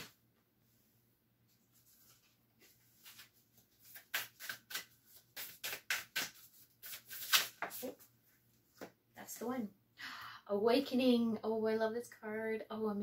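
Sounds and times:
cards being shuffled: 0:01.7 - 0:08.1.

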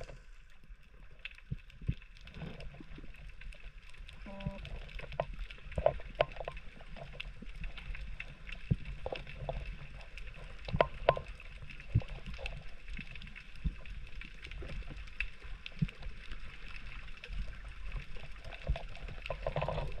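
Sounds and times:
underwater rumble: 0:00.0 - 0:20.0
sharp underwater clicks and knocks: 0:01.2 - 0:20.0.

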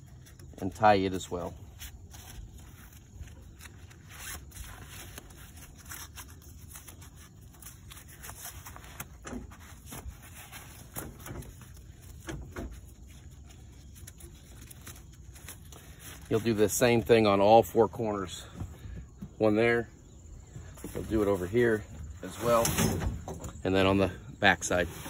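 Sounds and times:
strap and fabric rustling: 0:00.0 - 0:17.3.

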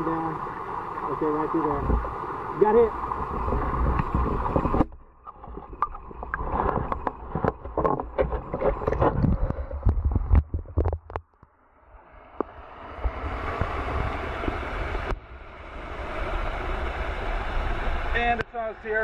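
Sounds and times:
muffled underwater sloshing: 0:00.0 - 0:11.5
sharp clicks and knocks: 0:03.8 - 0:11.5.

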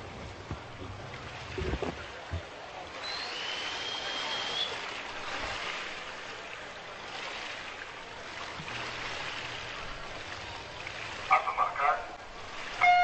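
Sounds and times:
water hiss: 0:01.3 - 0:05.8.

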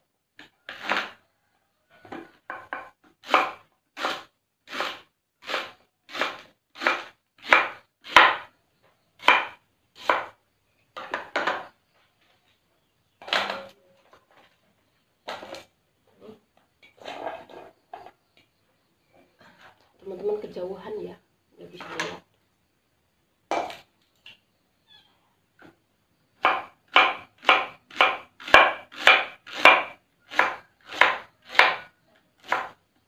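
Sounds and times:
knife chopping on cutting board: 0:05.5 - 0:08.5, 0:09.2 - 0:10.3, 0:26.4 - 0:31.8, 0:32.5 - 0:32.7.

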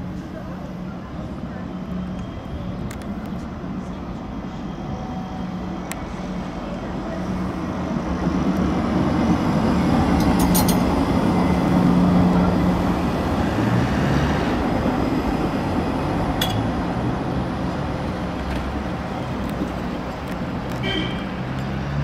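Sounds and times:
tram rolling rumble: 0:00.0 - 0:22.0.

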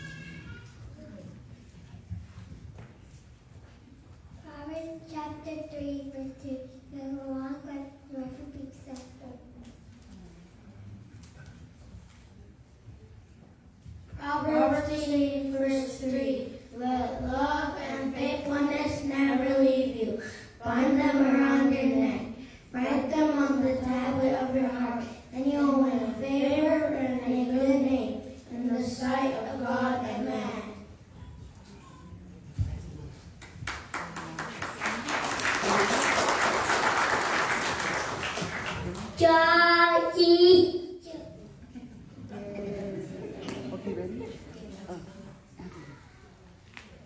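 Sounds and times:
audience applause: 0:33.6 - 0:39.2.

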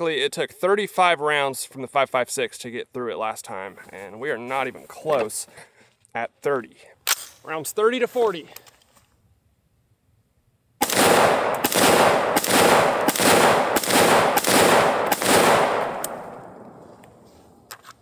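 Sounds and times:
rifle shots echoing: 0:10.8 - 0:17.7.

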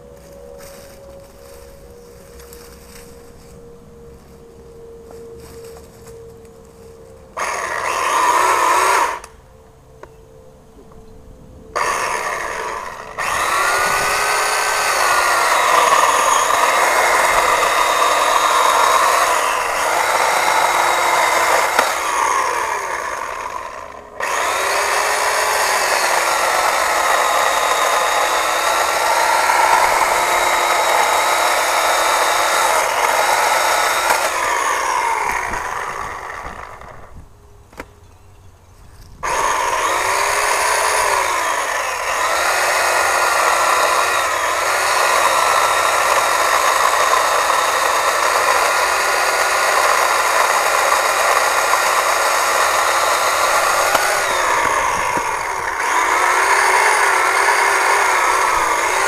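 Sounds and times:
electric chainsaw cutting logs: 0:00.0 - 0:09.7, 0:11.7 - 0:37.9, 0:39.1 - 0:59.0
chainsaw switch click: 0:53.8 - 0:55.3.

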